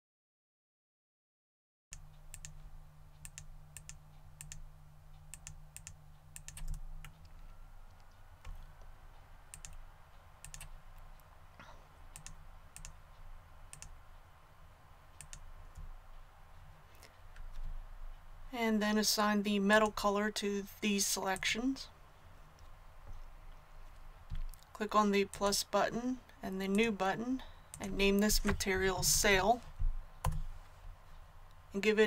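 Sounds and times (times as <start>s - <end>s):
low steady hum: 2.0s - 32.0s
mouse clicks: 9.5s - 9.8s.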